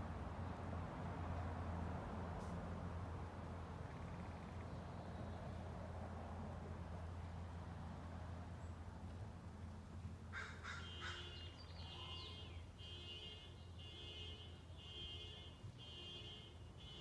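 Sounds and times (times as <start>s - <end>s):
crow cawing: 10.3s - 11.3s.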